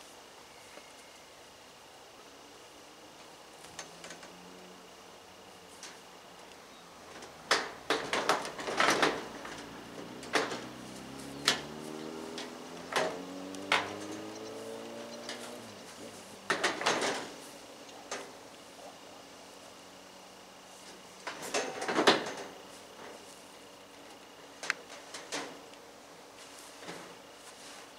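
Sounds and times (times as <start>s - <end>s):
low drone shifting in pitch: 9.5s - 16.4s.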